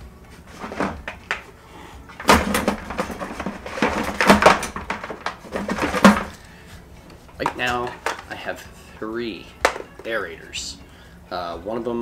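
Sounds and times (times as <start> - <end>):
gear clattering in plastic bucket: 0.5 - 1.3, 2.2 - 6.5.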